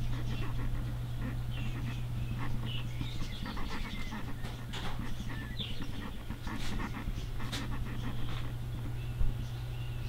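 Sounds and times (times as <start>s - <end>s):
dog panting: 0.0s - 8.4s
steady low hum: 0.0s - 10.0s.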